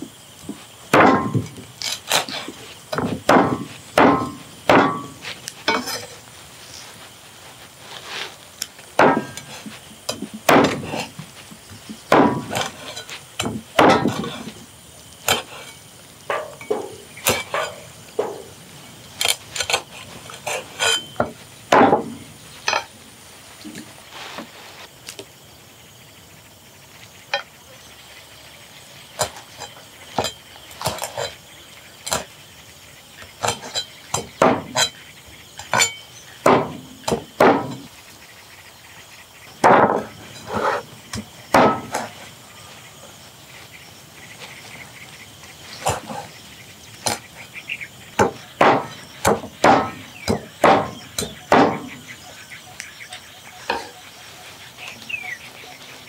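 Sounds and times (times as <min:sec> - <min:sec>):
cleaver chopping on block: 0:03.0 - 0:05.2, 0:09.0 - 0:09.5, 0:10.1 - 0:11.0, 0:12.1 - 0:12.7, 0:13.4 - 0:14.3, 0:33.4 - 0:34.9, 0:35.7 - 0:37.9, 0:41.1 - 0:42.1, 0:48.2 - 0:51.9.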